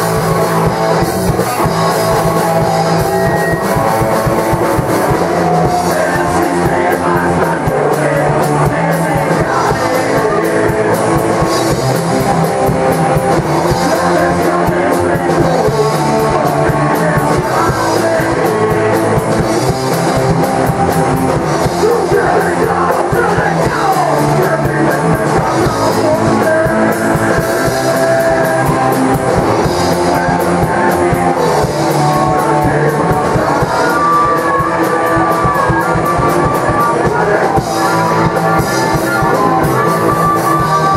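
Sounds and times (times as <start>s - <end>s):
shouted vocals: 0.0s - 12.5s, 21.6s - 40.9s
bass guitar: 0.0s - 40.9s
distorted electric guitars: 0.0s - 40.9s
fast driving drums: 0.0s - 40.9s.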